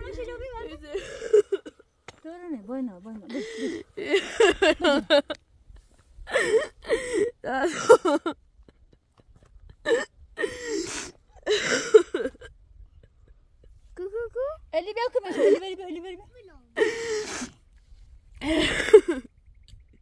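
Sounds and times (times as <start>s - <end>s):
woman crying out and sobbing: 6.3s - 8.3s, 15.2s - 16.2s, 16.8s - 17.4s.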